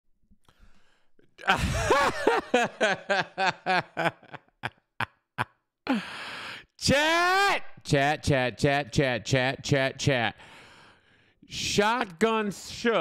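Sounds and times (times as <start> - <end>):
man laughing: 1.4 - 6.0.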